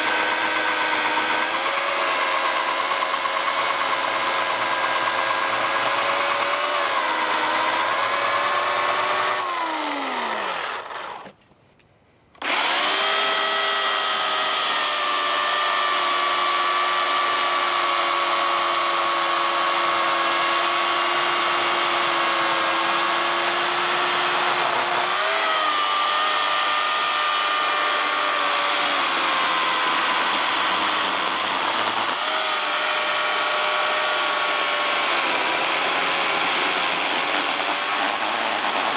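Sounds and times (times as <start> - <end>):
electric chainsaw cutting log: 0.0 - 11.4, 12.4 - 38.9.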